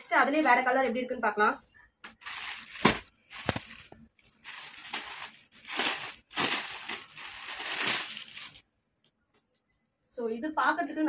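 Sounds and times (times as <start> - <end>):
plastic bag crinkling: 2.1 - 8.6.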